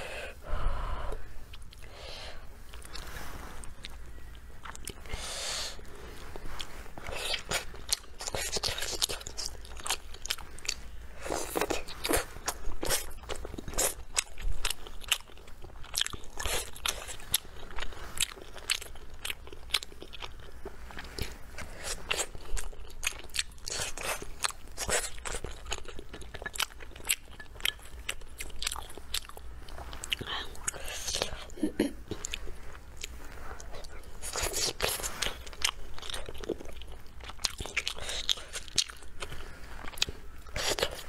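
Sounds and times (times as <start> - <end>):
chewing rice cake: 6.3 - 31.5, 32.1 - 41.0.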